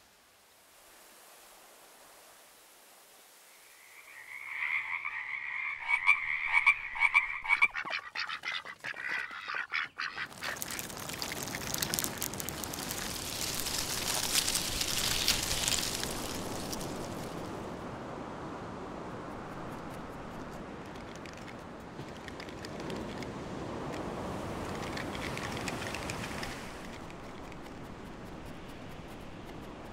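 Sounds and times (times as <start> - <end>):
croaking call: 3.7 - 12.9
crabs clicking on wet shore: 4.1 - 17.7, 19.1 - 29.9.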